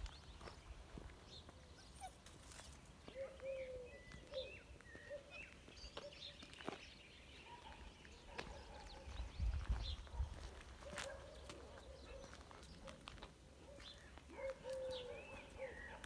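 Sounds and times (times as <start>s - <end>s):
light scuffing clicks: 9.7s - 15.0s.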